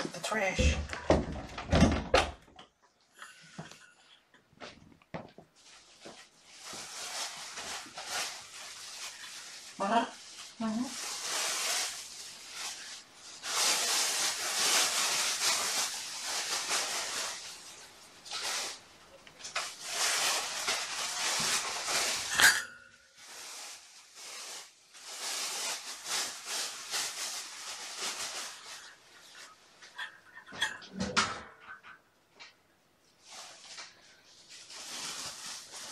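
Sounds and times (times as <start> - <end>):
plastic bag rustling and crinkling: 4.6 - 30.2, 33.2 - 35.9.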